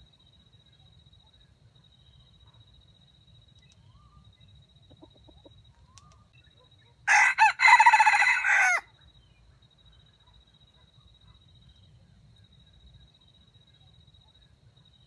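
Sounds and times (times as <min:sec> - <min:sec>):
rooster crowing: 0:07.1 - 0:08.9.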